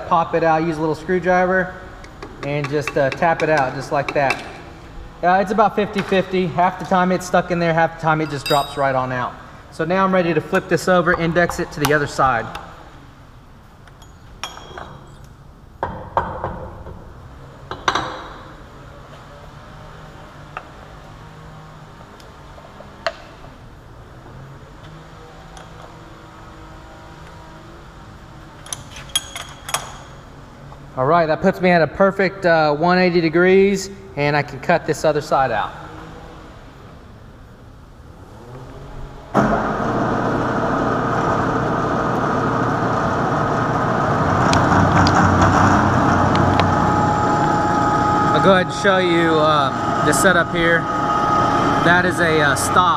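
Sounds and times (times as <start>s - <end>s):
metal knocks and clinks: 8.2s - 9.1s, 13.9s - 15.2s, 28.9s - 30.1s
steady low hum: 29.6s - 52.9s.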